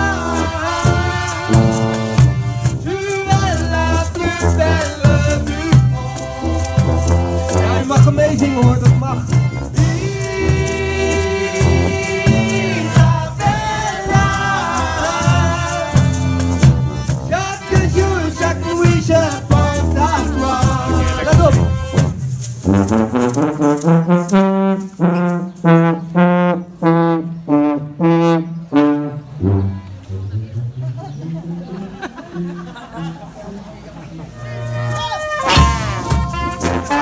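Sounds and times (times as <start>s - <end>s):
shakers rattling: 0.0s - 26.2s, 34.3s - 37.0s
street band playing upbeat tune: 0.0s - 37.0s
short repeated pitched notes: 34.4s - 37.0s.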